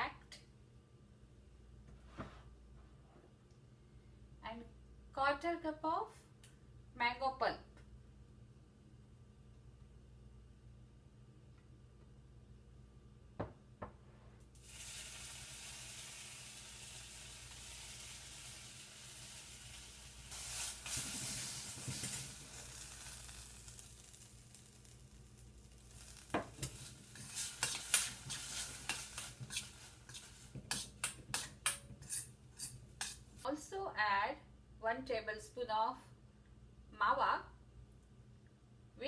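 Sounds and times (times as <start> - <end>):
steady hiss: 14.5 - 33.5.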